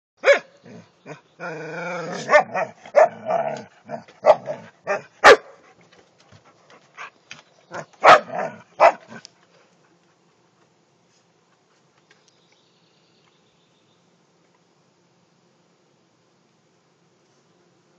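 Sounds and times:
dogs barking: 0:00.2 - 0:00.5, 0:02.2 - 0:05.6, 0:07.7 - 0:09.2
dogs growling and snarling: 0:00.6 - 0:05.0, 0:07.7 - 0:09.3.

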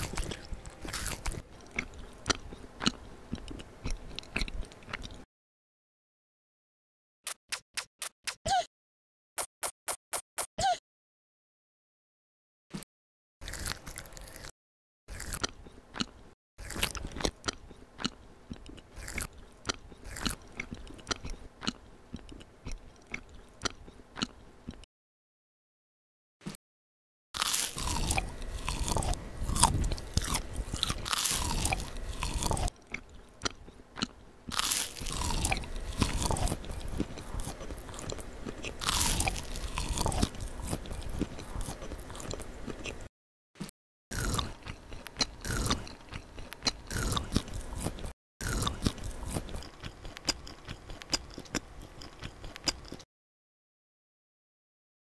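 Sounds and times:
crunchy bites and chewing: 0:00.0 - 0:05.2, 0:13.4 - 0:24.9, 0:27.4 - 0:43.1, 0:44.1 - 0:53.1.

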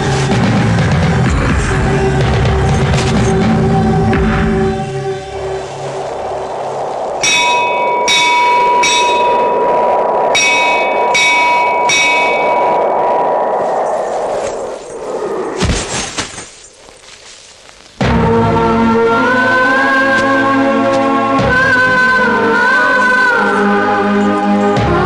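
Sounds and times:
steady held tone: 0:04.6 - 0:15.6
temple bell struck: 0:07.2 - 0:09.6, 0:10.4 - 0:12.7.

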